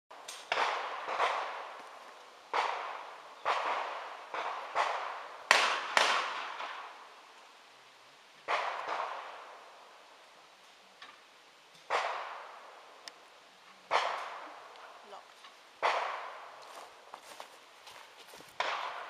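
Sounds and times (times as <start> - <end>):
gunshots echoing: 0.5 - 1.8, 2.5 - 7.0, 8.5 - 9.5, 11.9 - 12.6, 13.9 - 14.6, 15.8 - 16.6, 18.6 - 19.0.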